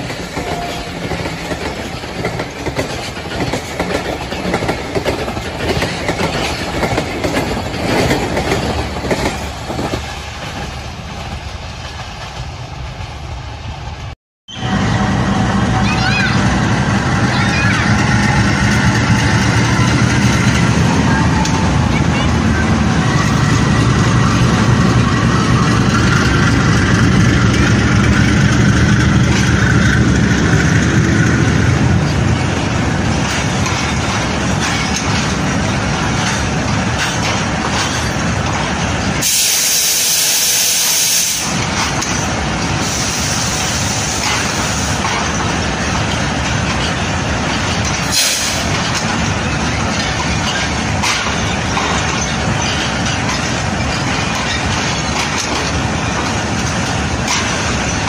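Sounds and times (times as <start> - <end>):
locomotive engine rumbling: 0.0 - 58.0
train wheels on rails: 0.0 - 58.0
air hiss: 39.2 - 41.6, 42.8 - 45.0.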